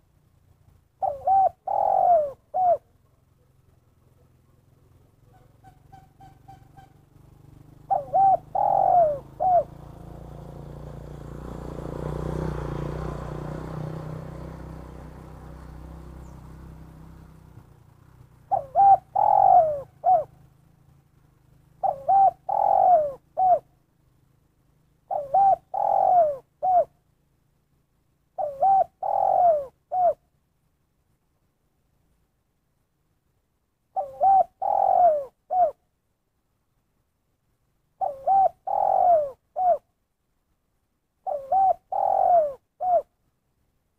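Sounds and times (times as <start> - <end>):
dove cooing: 0.9 - 6.9, 7.6 - 17.7, 18.3 - 20.7, 21.5 - 23.8, 25.0 - 27.0, 28.3 - 30.3, 33.9 - 35.8, 38.0 - 40.0, 41.2 - 43.2.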